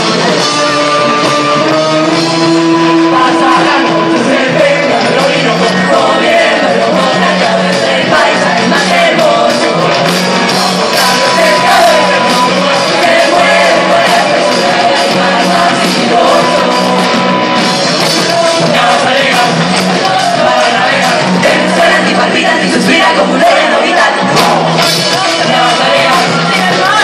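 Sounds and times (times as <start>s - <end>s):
chorus of voices singing: 0.0s - 27.0s
drums and percussion: 0.0s - 27.0s.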